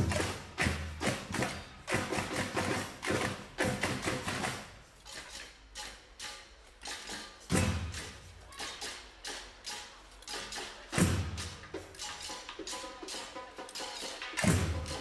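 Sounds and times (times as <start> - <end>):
music with thumping beat: 10.3 - 15.0.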